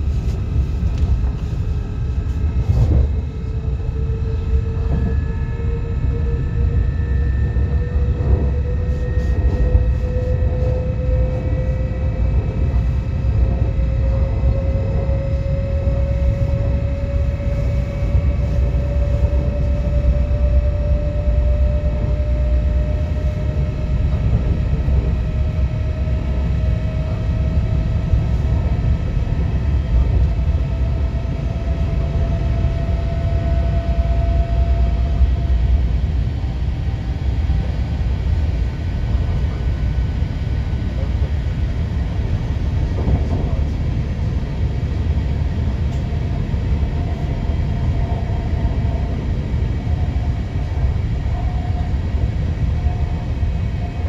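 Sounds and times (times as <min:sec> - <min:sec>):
train wheels rumbling: 0:07.5 - 0:54.0.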